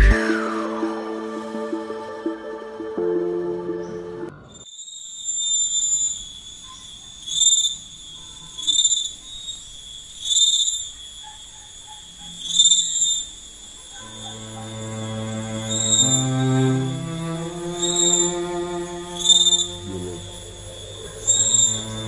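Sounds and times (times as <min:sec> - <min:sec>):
insects buzzing: 0:04.4 - 0:22.0
faint bird chirps: 0:04.5 - 0:22.0.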